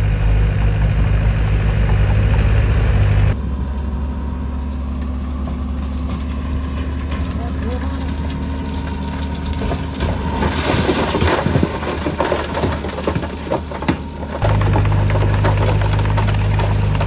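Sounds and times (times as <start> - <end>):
heavy machinery diesel engines: 0.0 - 17.0
knocks and clatter: 5.0 - 17.0.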